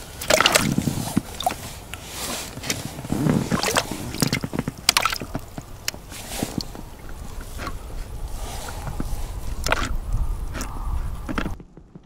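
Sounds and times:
wet squishing and dripping: 0.1s - 1.7s, 3.4s - 11.4s.

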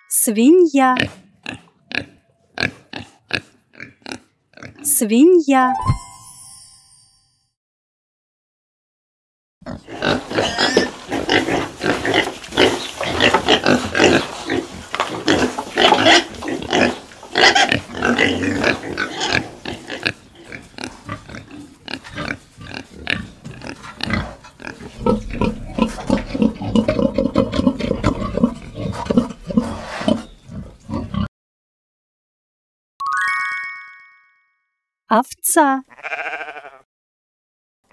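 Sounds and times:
pigs grunting and squealing: 1.0s - 4.9s, 9.6s - 31.3s.

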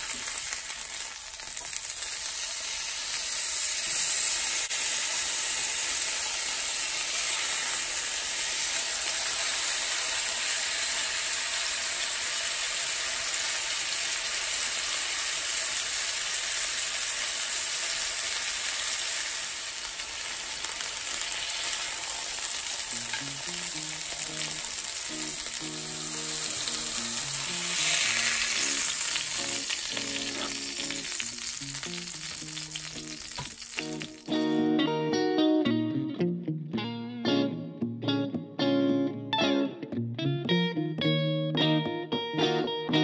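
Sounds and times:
steaks sizzling in skillet: 0.0s - 34.6s.

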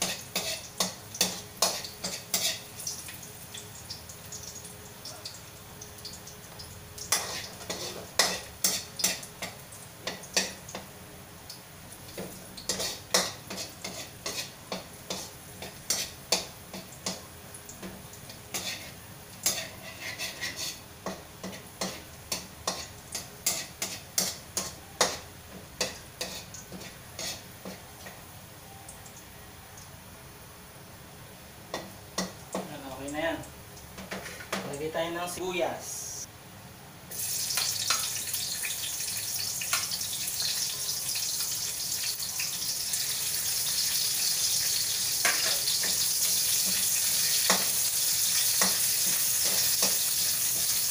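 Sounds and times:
metal spatula scraping wok: 0.0s - 2.7s, 7.1s - 9.3s, 12.7s - 16.2s, 18.5s - 22.0s, 26.2s - 27.5s
oil sizzling: 0.0s - 29.9s, 37.1s - 50.9s.

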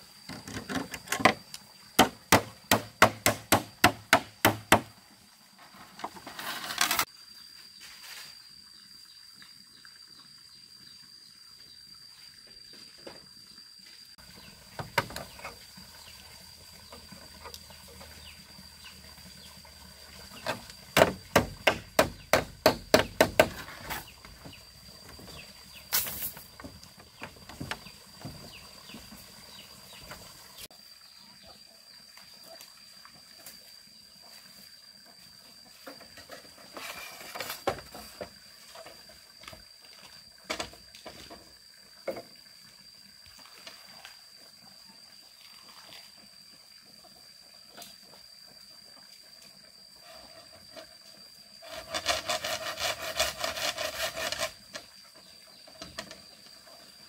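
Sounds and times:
hand tool striking wood: 2.0s - 4.9s, 20.5s - 24.1s.

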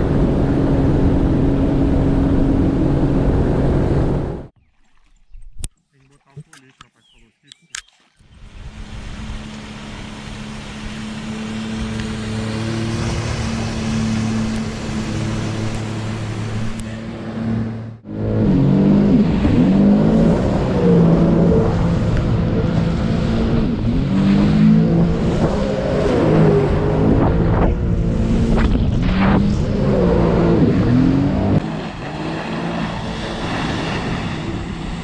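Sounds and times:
jet ski engine: 0.0s - 4.6s, 8.2s - 35.0s.

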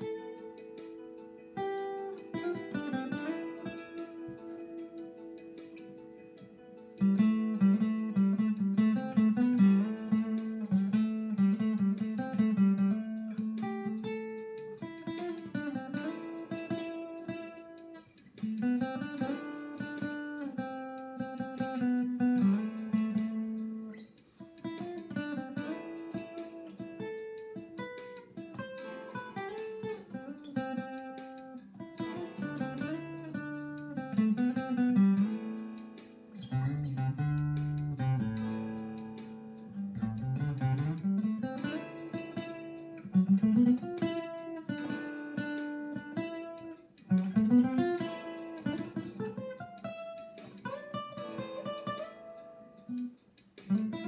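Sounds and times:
fingerstyle acoustic guitar: 0.0s - 54.0s.

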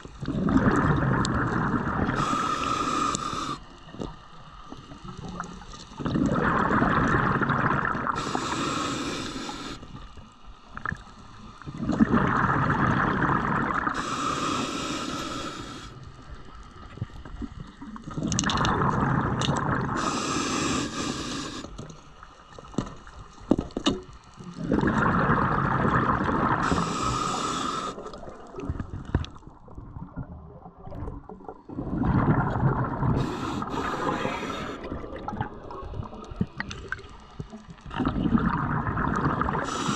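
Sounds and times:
bubbles gurgling underwater: 0.0s - 2.3s, 5.0s - 8.2s, 11.7s - 14.0s, 17.4s - 20.0s, 24.6s - 26.8s, 28.0s - 39.9s
regulator hiss: 2.1s - 3.8s, 8.1s - 11.6s, 13.9s - 16.5s, 19.9s - 22.4s, 26.5s - 28.2s, 33.2s - 34.9s, 39.6s - 39.9s.

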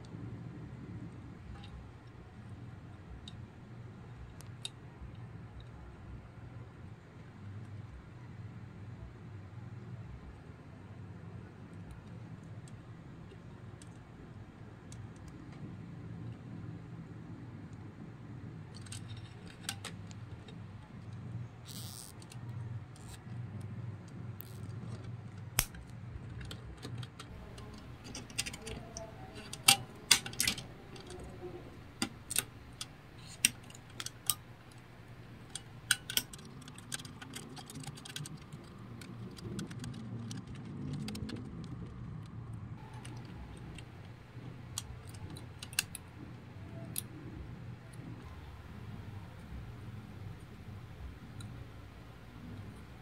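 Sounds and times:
steady low hum: 0.0s - 53.0s
pliers clicking and snipping wires: 24.4s - 41.4s, 42.8s - 47.2s.

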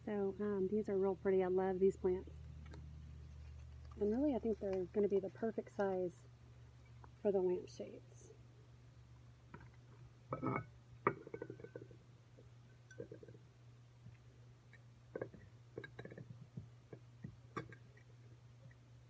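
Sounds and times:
low hum: 0.0s - 19.0s
plants rustling: 2.5s - 6.1s.

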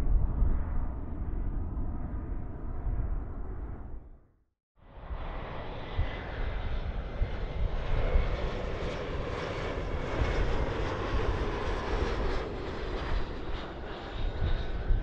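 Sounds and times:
airliner engines running: 4.9s - 15.0s.

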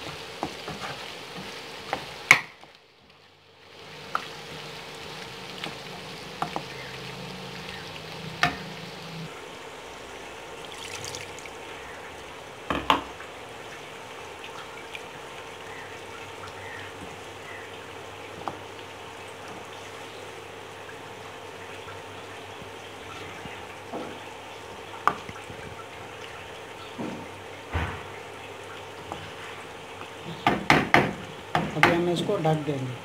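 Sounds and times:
meat and potatoes sizzling in a wok: 0.0s - 10.7s
water poured into pan: 10.6s - 11.7s.

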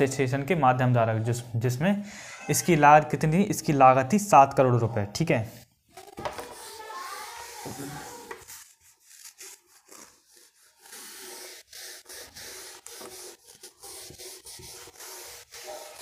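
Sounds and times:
handwriting scratching: 6.0s - 16.0s.

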